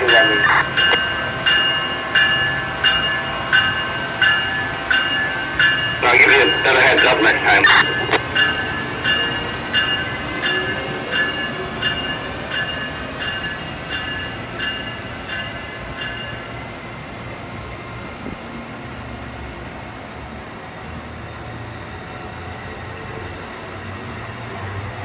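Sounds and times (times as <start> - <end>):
locomotive bell ringing: 0.0 - 16.6
train cars rumbling past: 0.0 - 25.0.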